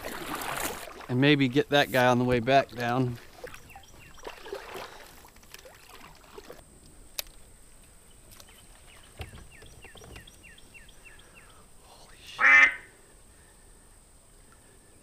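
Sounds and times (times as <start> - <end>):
kayak paddle dipping and dripping: 0.0 - 6.6, 8.2 - 11.6
bird chirping: 3.4 - 4.5, 8.0 - 11.6.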